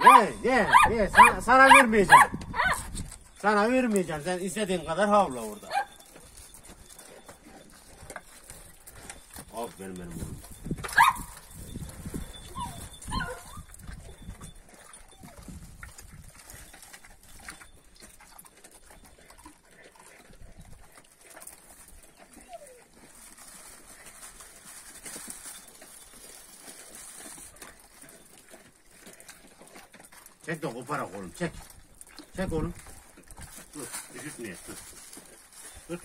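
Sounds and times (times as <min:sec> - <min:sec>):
dog whining: 0:12.3 - 0:13.8, 0:14.8 - 0:15.5, 0:22.0 - 0:23.1.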